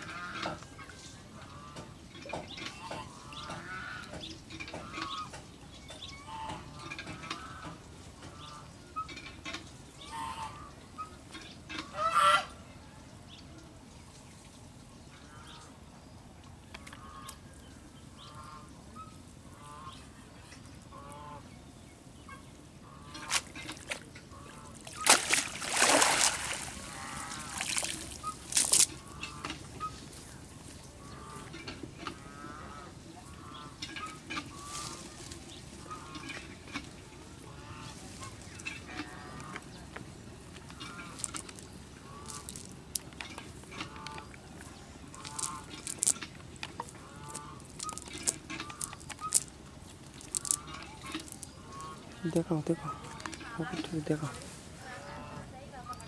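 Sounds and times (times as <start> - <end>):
fowl honking and clucking: 0.0 - 1.9, 10.0 - 12.6, 18.2 - 20.1, 20.9 - 21.5, 26.5 - 30.0, 31.0 - 39.7, 42.0 - 42.7, 45.1 - 46.2, 46.8 - 49.5, 50.3 - 56.0.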